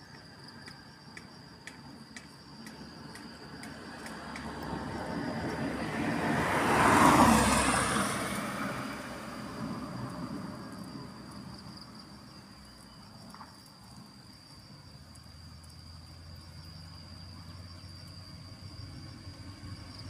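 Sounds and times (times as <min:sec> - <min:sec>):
insects trilling: 0:00.0 - 0:20.0
low engine hum: 0:01.8 - 0:12.3, 0:15.1 - 0:20.0
passing vehicle: 0:03.2 - 0:12.0, 0:16.0 - 0:20.0.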